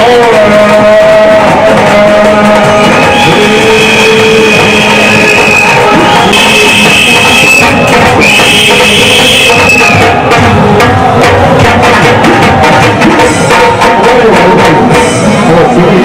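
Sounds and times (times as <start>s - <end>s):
loud music with drums: 0.0s - 16.0s.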